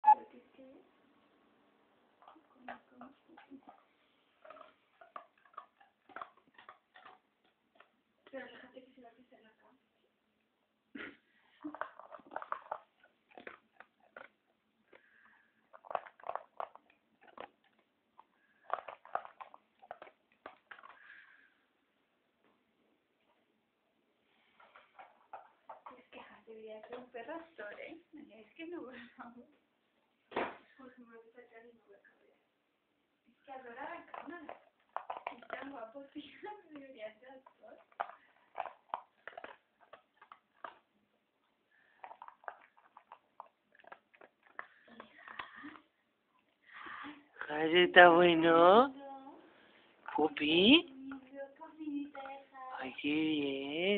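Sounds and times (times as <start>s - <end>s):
dog crunching food: 2.2s - 8.6s, 11.6s - 21.4s, 24.5s - 26.2s, 33.8s - 45.8s, 49.9s - 51.3s.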